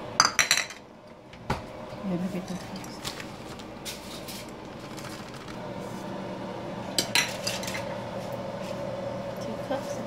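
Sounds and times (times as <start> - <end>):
steady background hum: 0.0 - 10.0
dishes clattering: 0.2 - 0.8, 7.0 - 7.9.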